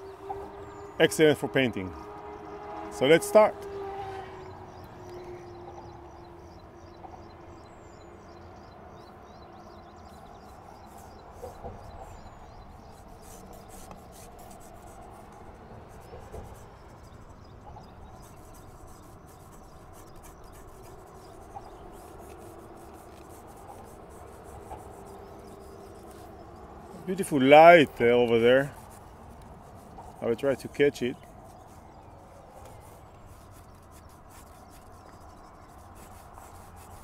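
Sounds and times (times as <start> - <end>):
drawing tool scratching on paper: 10.0 - 37.0.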